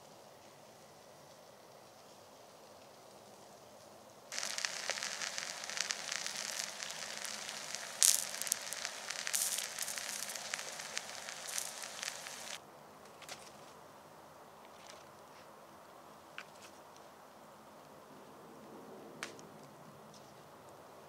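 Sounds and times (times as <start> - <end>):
food sizzling in a pan: 4.3 - 12.6.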